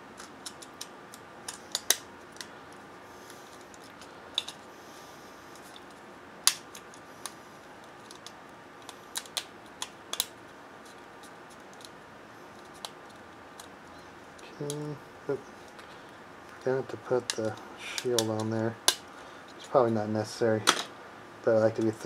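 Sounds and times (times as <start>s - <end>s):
small phone parts clicking: 0.2s - 2.5s, 3.5s - 4.6s, 8.0s - 12.0s.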